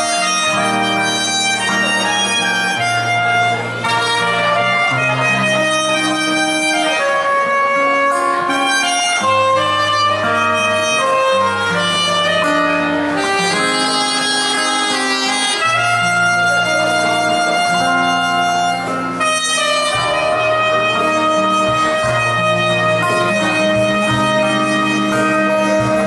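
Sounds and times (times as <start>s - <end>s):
soprano saxophone melody: 0.0s - 26.0s
strummed acoustic guitar: 0.0s - 26.0s.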